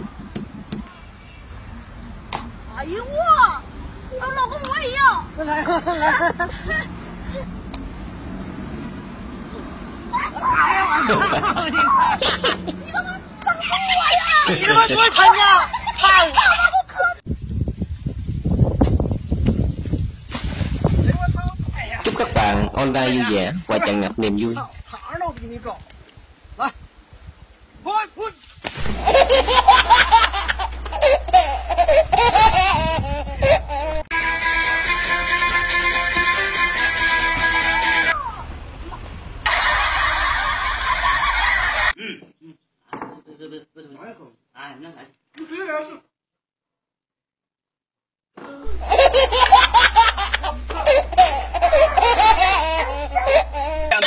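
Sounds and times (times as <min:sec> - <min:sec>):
high-pitched giggling laughter: 0:05.4 - 0:07.5, 0:10.9 - 0:13.0, 0:14.3 - 0:17.2, 0:29.0 - 0:34.1, 0:48.7 - 0:54.0
steady low hum: 0:28.8 - 0:37.4, 0:48.7 - 0:54.0
guitar music: 0:28.9 - 0:38.1.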